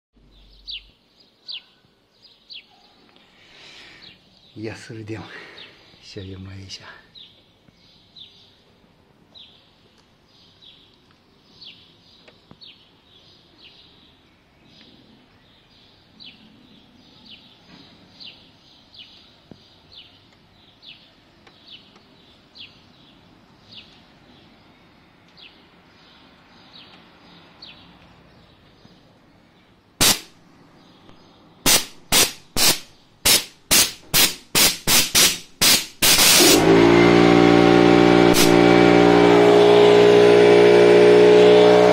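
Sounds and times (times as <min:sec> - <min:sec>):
compressed air blasts: 0:30.0 - 0:30.4, 0:31.6 - 0:41.9.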